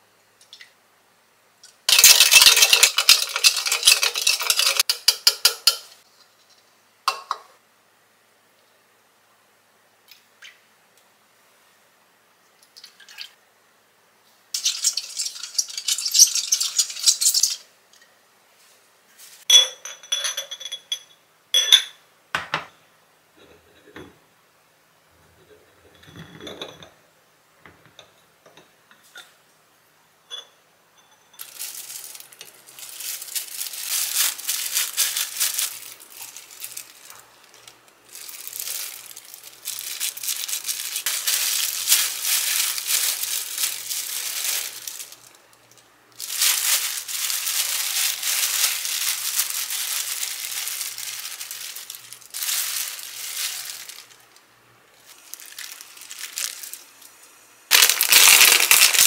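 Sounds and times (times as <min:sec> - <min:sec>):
plastic gloves crinkling: 0:01.9 - 0:04.9, 0:31.4 - 0:59.0
glass clinks: 0:19.5 - 0:22.7.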